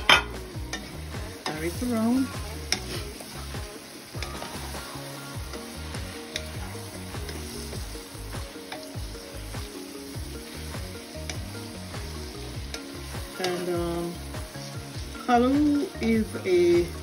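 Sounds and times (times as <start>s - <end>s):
spatula scraping and tapping a pan: 0.0s - 1.7s, 2.6s - 3.4s, 5.5s - 7.6s, 12.6s - 13.7s
vegetables sizzling in a frying pan: 0.0s - 17.0s.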